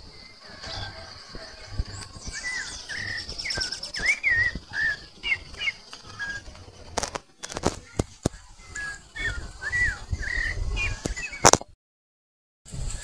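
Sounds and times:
bird whistling notes: 0.6 - 6.7, 8.6 - 11.5.

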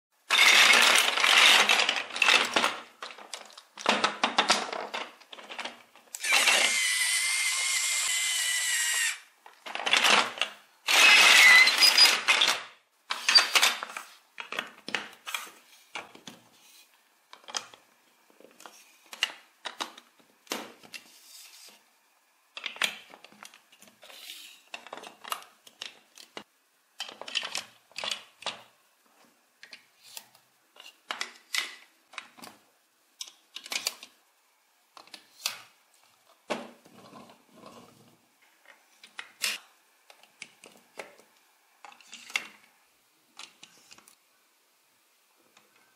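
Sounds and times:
plastic bricks clicking together: 0.3 - 15.3, 22.6 - 23.9, 24.7 - 28.7
plastic toy blocks clattering: 0.3 - 16.4, 17.3 - 21.0, 22.6 - 28.7, 33.2 - 34.2.

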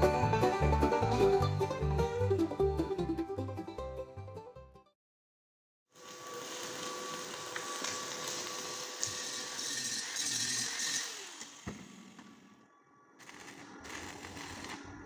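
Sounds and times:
angle grinder grinding steel: 6.0 - 12.1.

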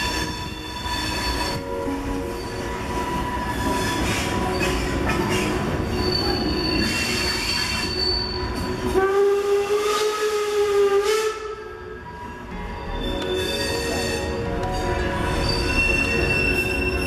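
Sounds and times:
train wheels squealing: 0.0 - 9.0, 12.0 - 17.0
train whistle: 6.1 - 12.0.

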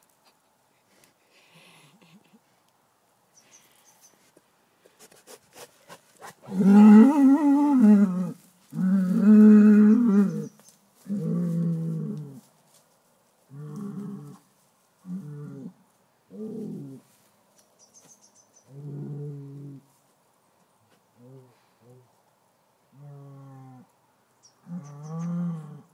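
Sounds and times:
bull mooing: 6.5 - 10.5.

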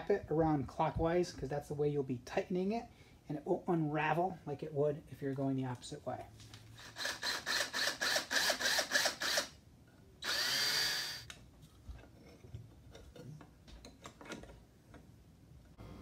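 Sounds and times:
drill motor whirring: 6.8 - 9.5, 10.2 - 11.3
drill clutch clicking: 10.2 - 11.2.

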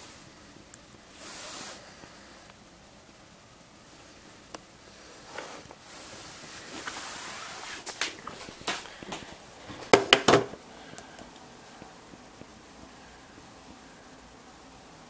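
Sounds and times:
circuit board clicks and knocks: 9.9 - 10.6.

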